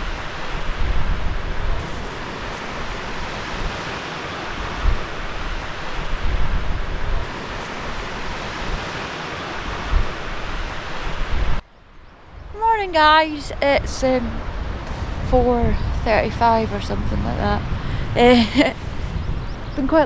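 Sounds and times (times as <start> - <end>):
surf breaking over rocks: 0.0 - 11.6
wind buffeting microphone: 0.0 - 20.0.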